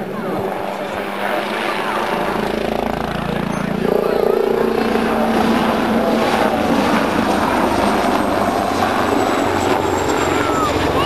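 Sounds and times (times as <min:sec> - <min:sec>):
helicopter rotor and turbine: 0:00.0 - 0:11.0.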